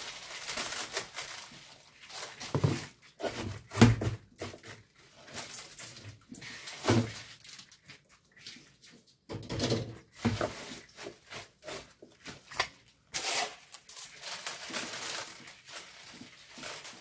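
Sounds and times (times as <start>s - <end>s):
leaves rustling: 0.0s - 3.0s, 13.2s - 17.0s.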